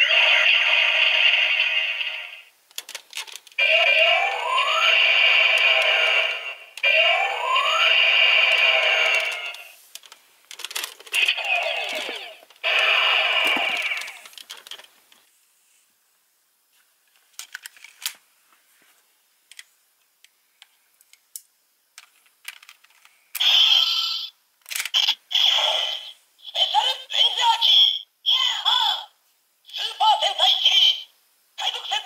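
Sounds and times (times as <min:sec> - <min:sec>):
toy electronic blast effects: 0:00.0 - 0:02.5, 0:03.6 - 0:09.8, 0:11.2 - 0:14.3, 0:23.4 - 0:24.3
plastic toy clicks: 0:24.6 - 0:25.2.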